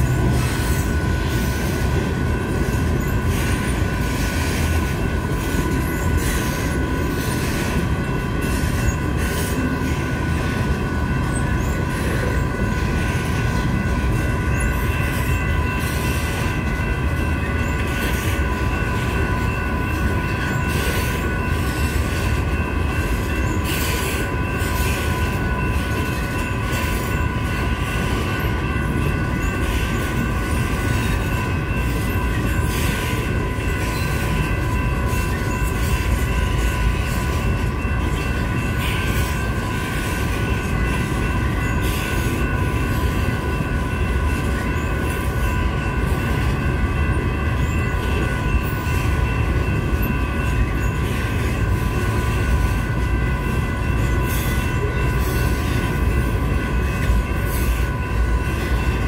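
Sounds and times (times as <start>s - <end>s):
crossing warning bells: 0.0s - 59.0s
train wheels rumbling on rails: 0.0s - 59.0s.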